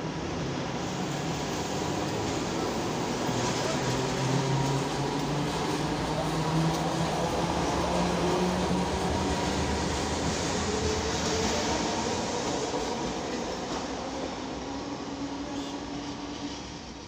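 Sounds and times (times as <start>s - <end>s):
electric tram rumbling on rails: 0.0s - 17.0s.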